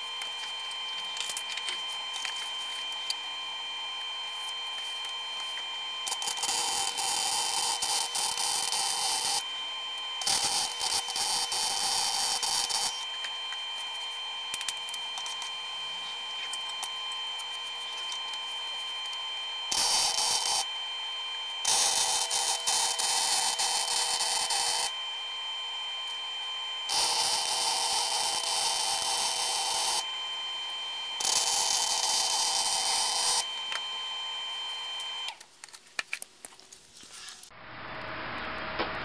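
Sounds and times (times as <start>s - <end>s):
steady welder hum: 0.0s - 35.5s
welder crackling and sputtering: 3.9s - 9.4s, 10.1s - 20.7s, 21.6s - 24.9s, 26.9s - 30.0s.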